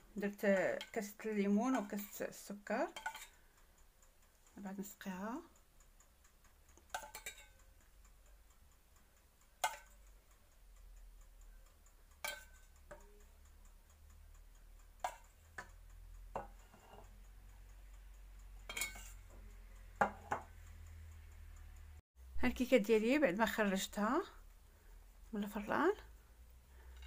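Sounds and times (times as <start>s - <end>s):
metal spoon clinking on pans: 2.9s - 3.4s, 6.8s - 7.6s, 9.6s - 10.0s, 12.2s - 12.7s, 15.0s - 15.7s, 16.4s - 17.1s, 18.6s - 19.3s.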